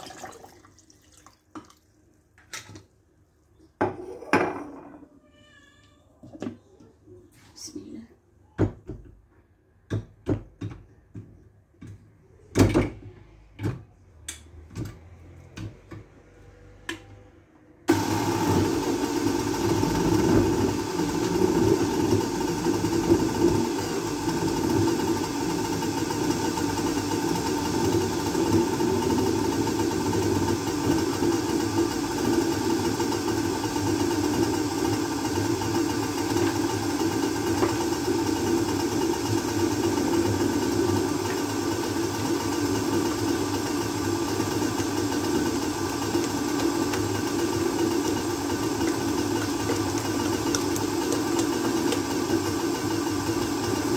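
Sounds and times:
blender motor running: 17.9 - 53.9.

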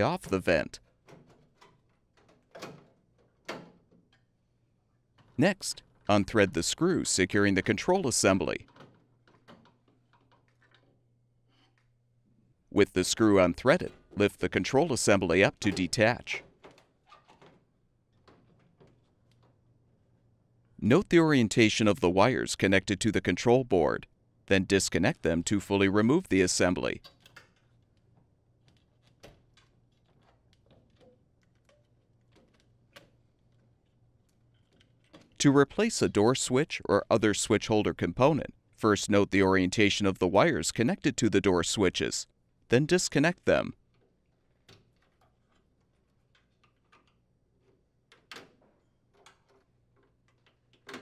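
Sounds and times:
wire connectors clicking and rattling: 0.1 - 4.4, 8.2 - 12.0, 13.2 - 19.8, 26.9 - 35.7, 43.8 - 51.0.

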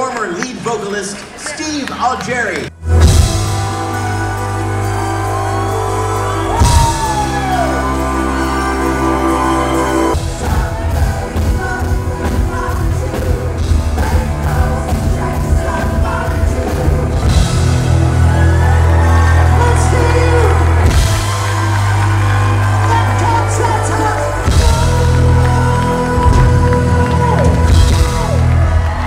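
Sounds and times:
rock band playing: 2.8 - 29.0
person singing: 3.4 - 29.0.

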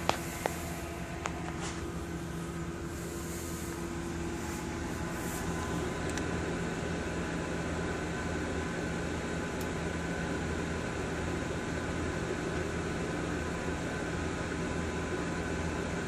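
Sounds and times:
microwave oven humming: 0.0 - 16.0.

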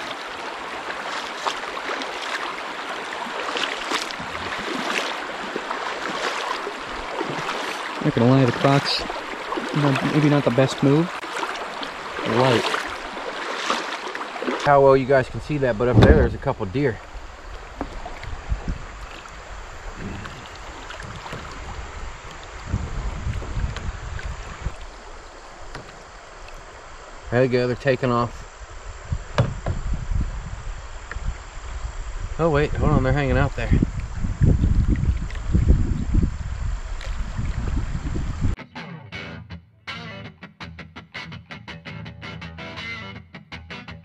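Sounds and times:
wading splashes: 0.0 - 29.4
water rushing around a kayak: 0.0 - 38.6
wind buffeting microphone: 4.2 - 5.4, 14.6 - 38.6
low thumps: 15.2 - 16.8, 19.9 - 24.9, 29.1 - 30.5.

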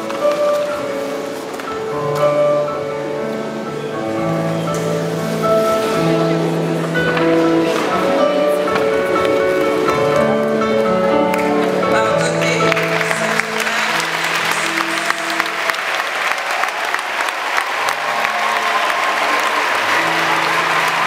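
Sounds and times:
music with long held notes: 0.0 - 16.4, 19.4 - 21.0
audience applauding: 11.3 - 21.0.

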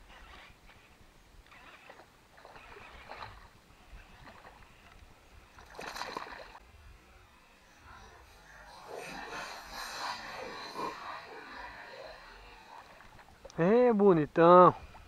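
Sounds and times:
fish splashing in water: 1.4 - 6.6
loud splash: 5.6 - 6.6.

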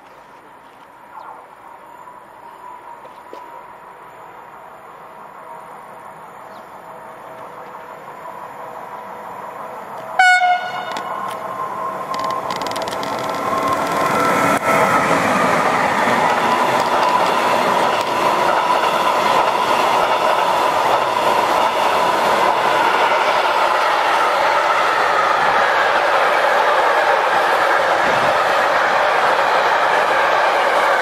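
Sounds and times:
electric locomotive passing: 0.1 - 31.0
locomotive horn blast: 10.2 - 11.2.

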